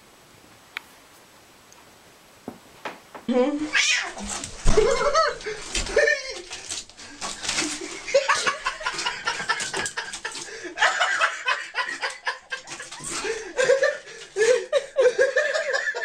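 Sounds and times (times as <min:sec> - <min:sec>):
person laughing: 0:04.7 - 0:06.6, 0:07.6 - 0:16.0.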